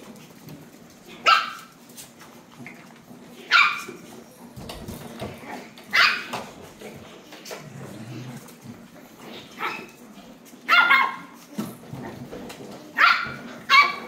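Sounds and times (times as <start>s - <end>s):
small dog barking: 1.2s - 1.7s, 5.9s - 6.3s, 10.7s - 11.3s, 13.0s - 14.0s.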